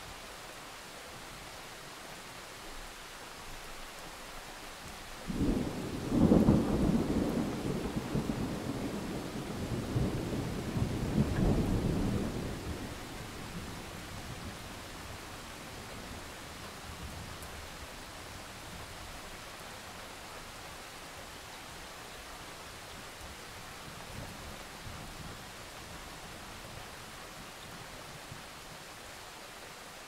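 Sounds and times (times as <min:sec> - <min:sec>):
steady rain: 0:00.0 - 0:30.0
thunder rolling: 0:05.3 - 0:13.0.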